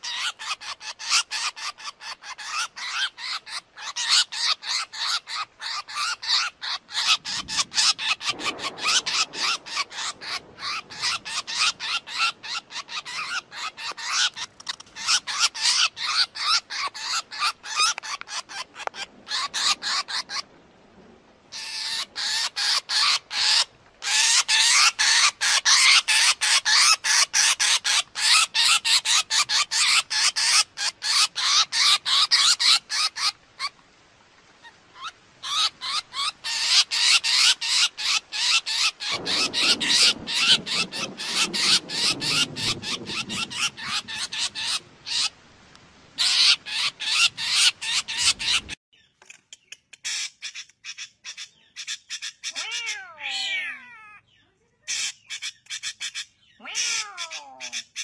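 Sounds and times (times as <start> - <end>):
sharp repeated bird calls: 0.0 - 20.4, 35.0 - 45.4
low falling bird call: 7.0 - 16.2, 35.0 - 45.4.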